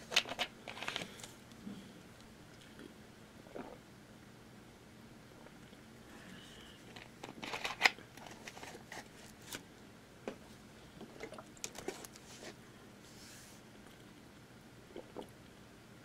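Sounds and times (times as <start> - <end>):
plastic bottle crinkling and clicking: 6.9 - 9.6, 11.0 - 12.2.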